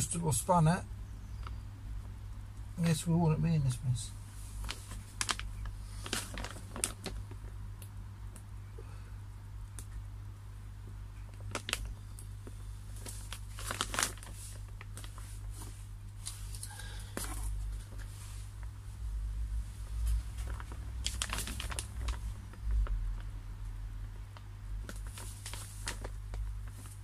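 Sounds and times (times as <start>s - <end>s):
plastic liner crinkling: 4.4s - 8.4s, 11.2s - 18.7s, 19.8s - 23.4s, 24.3s - 27.0s.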